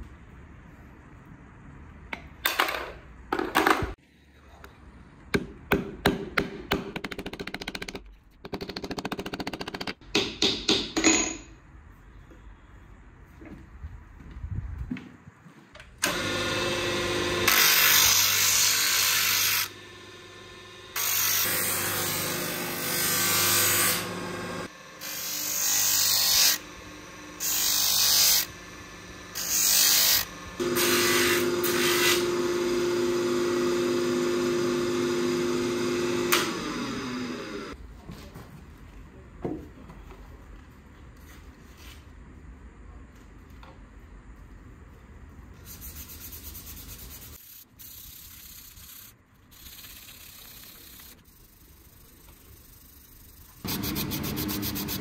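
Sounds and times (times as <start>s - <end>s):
sander motor humming: 26.6s - 37.8s, 53.6s - 55.0s
sanding disc on wood: 45.6s - 55.0s.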